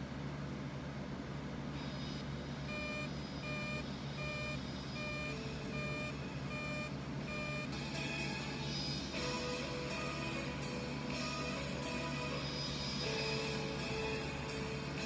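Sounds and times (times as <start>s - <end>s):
steady low hum: 0.0s - 15.0s
short pitched warning beeps: 2.7s - 7.7s
background music: 7.6s - 15.0s.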